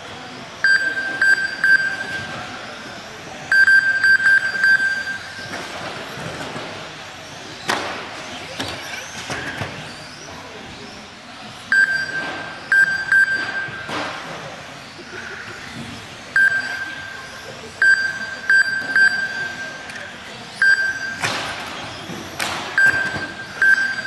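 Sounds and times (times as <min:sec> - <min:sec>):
short high beeps: 0:00.6 - 0:02.5, 0:03.5 - 0:05.5, 0:11.7 - 0:14.0, 0:16.3 - 0:17.2, 0:17.8 - 0:21.3, 0:22.8 - 0:24.0.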